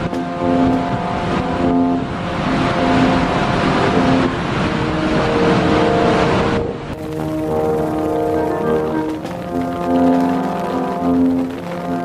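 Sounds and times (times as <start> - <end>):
floodwater rushing and crashing: 0.0 - 12.0
background music of held notes: 5.4 - 12.0.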